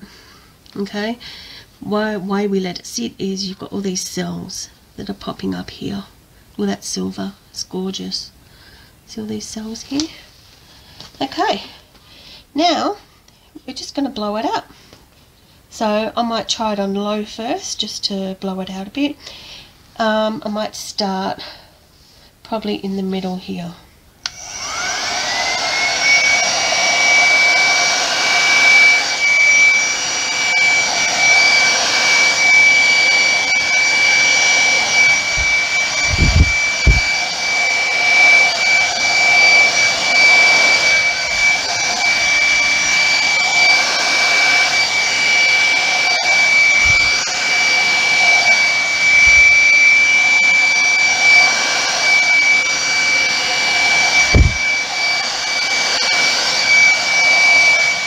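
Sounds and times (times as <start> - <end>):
hairdryer blowing: 24.2 - 58.0
low thumps: 35.1 - 37.1, 54.3 - 54.7.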